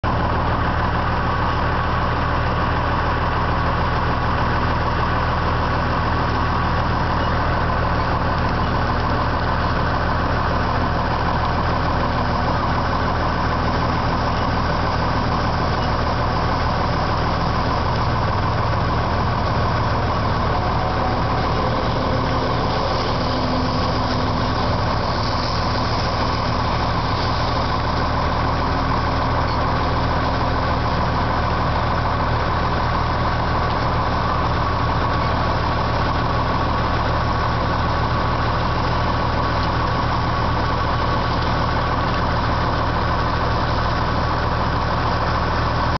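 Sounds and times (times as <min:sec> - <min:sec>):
combine harvester running: 0:00.0 - 0:45.9.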